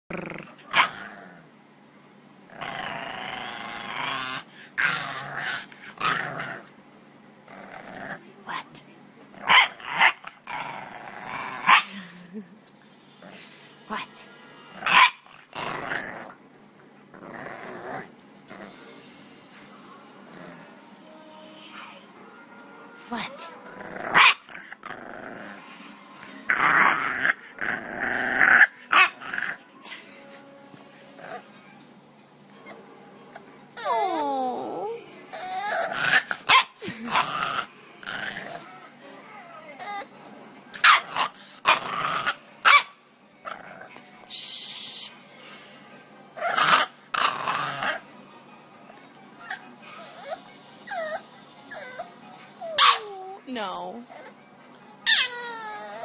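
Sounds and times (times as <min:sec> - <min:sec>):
puppy growling: 0:00.1 - 0:01.6, 0:02.5 - 0:06.8, 0:07.4 - 0:12.4, 0:14.7 - 0:20.9, 0:23.4 - 0:29.6, 0:31.2 - 0:31.6, 0:32.6 - 0:42.8, 0:43.4 - 0:44.2, 0:46.4 - 0:48.1, 0:49.4 - 0:54.4, 0:55.1 - 0:56.0
puppy barking: 0:09.5 - 0:10.3, 0:11.7 - 0:11.9, 0:14.9 - 0:15.3, 0:24.2 - 0:24.5, 0:36.2 - 0:36.8, 0:40.8 - 0:41.2, 0:42.7 - 0:43.0, 0:52.7 - 0:53.2, 0:55.1 - 0:55.6.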